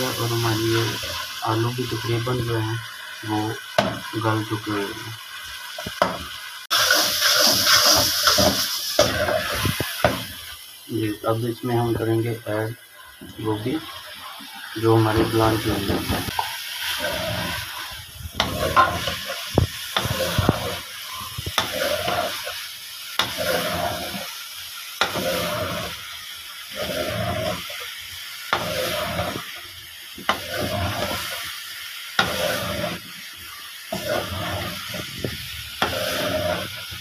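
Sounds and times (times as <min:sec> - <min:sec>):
vegetables sizzling in oil: 0:00.0 - 0:37.0
metal spatula scraping a pot: 0:05.6 - 0:10.6, 0:15.1 - 0:22.6, 0:23.2 - 0:24.3, 0:25.0 - 0:26.0, 0:26.7 - 0:27.8, 0:28.5 - 0:29.6, 0:30.3 - 0:31.5, 0:32.2 - 0:33.1, 0:33.9 - 0:37.0.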